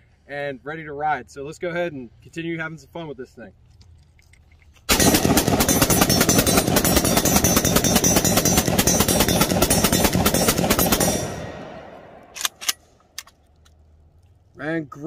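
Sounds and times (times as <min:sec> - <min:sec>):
rifle firing rapid shots: 0:04.9 - 0:12.7.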